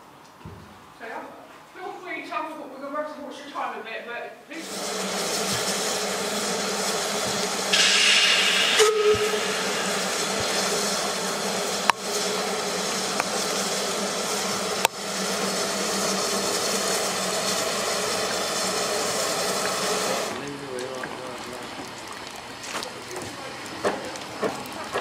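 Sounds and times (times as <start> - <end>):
steam locomotive hissing: 4.5 - 21.8.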